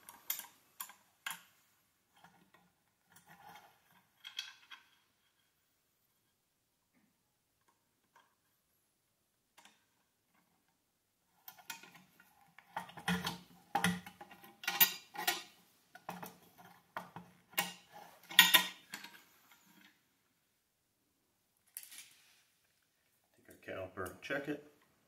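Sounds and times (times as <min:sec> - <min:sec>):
metallic clinks and clanks: 0:12.8 - 0:16.2, 0:17.5 - 0:19.7.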